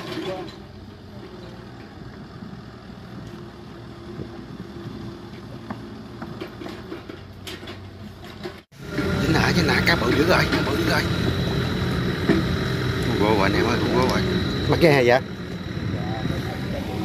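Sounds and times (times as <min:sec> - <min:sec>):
boat engine idling: 0:08.7 - 0:17.0.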